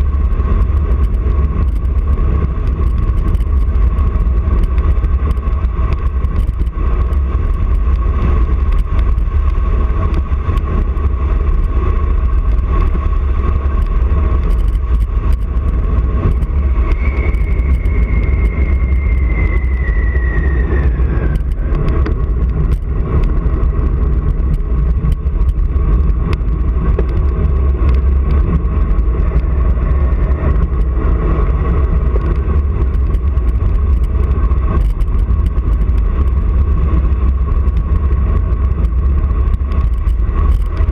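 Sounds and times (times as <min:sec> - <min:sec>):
wind buffeting microphone: 0:00.0 - 0:40.9
faint falling whine: 0:15.4 - 0:23.8.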